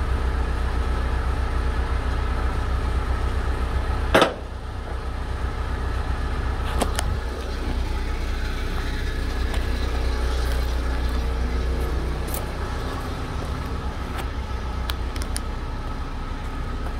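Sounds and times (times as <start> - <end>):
vehicle engine idling: 0.0 - 16.9
sharp knock: 4.2 - 4.5.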